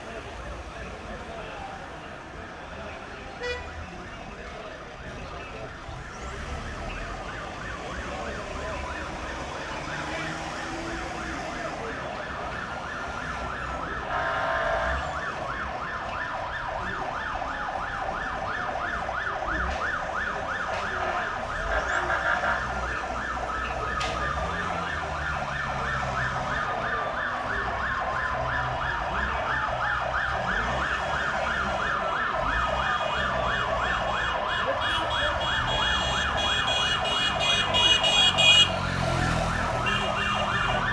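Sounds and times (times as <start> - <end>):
ambulance sirens wailing: 0.0 - 40.9
vehicle engines running: 19.0 - 40.9.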